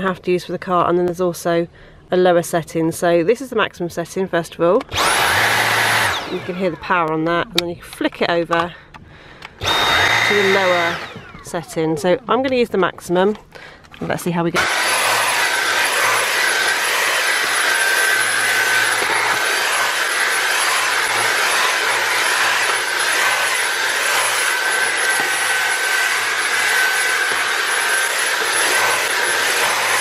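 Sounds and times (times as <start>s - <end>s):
vacuum cleaner whine and hiss: 5.0s - 6.7s, 9.6s - 11.5s, 14.6s - 30.0s.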